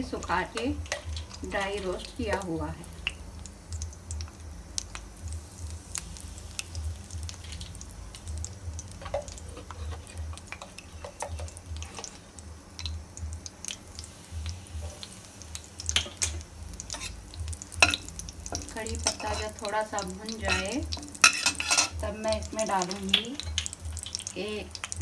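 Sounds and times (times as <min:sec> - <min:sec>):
leaves crackling in hot fat: 0:00.0 - 0:25.0
steel spatula stirring: 0:09.0 - 0:12.2, 0:15.9 - 0:17.2, 0:17.8 - 0:22.0.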